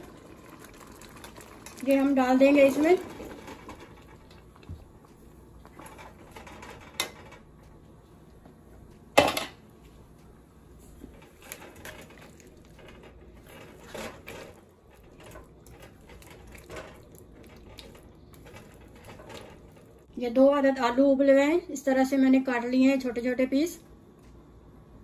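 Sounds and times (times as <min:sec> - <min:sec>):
wet stirring in a pot: 0:00.0 - 0:06.8, 0:10.7 - 0:20.2.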